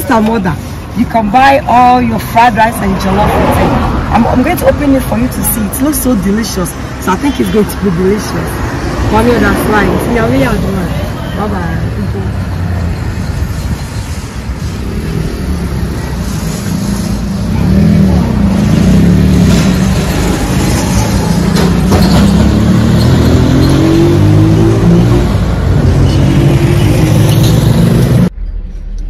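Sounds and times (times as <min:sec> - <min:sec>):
traffic noise: 0:00.0 - 0:29.0
vehicle engine accelerating: 0:14.5 - 0:29.0.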